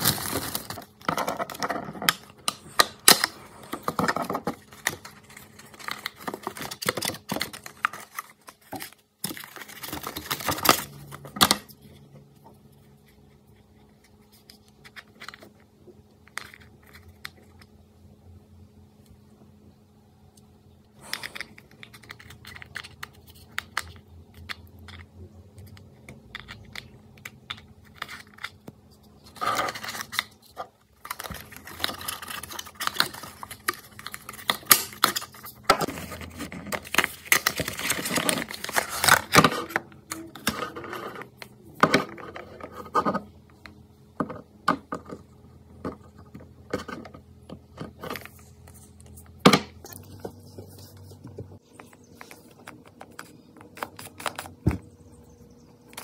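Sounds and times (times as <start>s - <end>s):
plastic wrapping crinkling: 0.0s - 2.1s, 29.3s - 41.3s.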